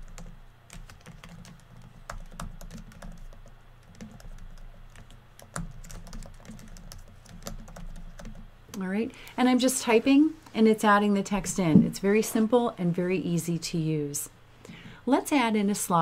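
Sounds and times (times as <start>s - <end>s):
computer keyboard typing: 0.0s - 8.5s.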